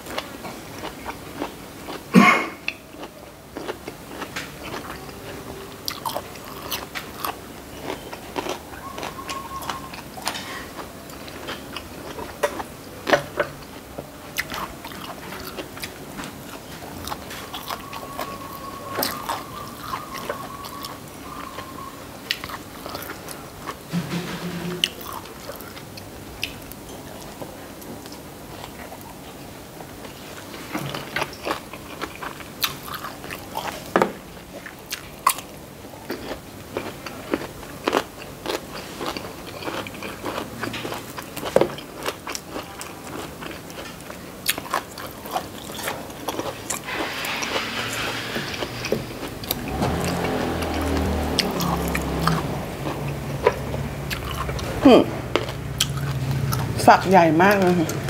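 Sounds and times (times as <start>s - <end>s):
chewing and biting food: 0.0s - 23.9s, 24.8s - 56.9s.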